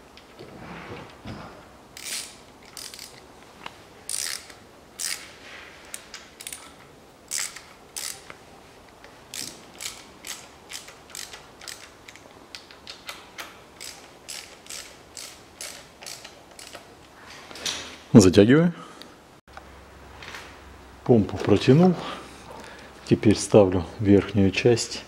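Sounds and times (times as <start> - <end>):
ratchet wrench clicking: 2.0 - 3.2, 4.1 - 5.3, 6.4 - 8.4, 9.3 - 13.1, 13.8 - 16.9.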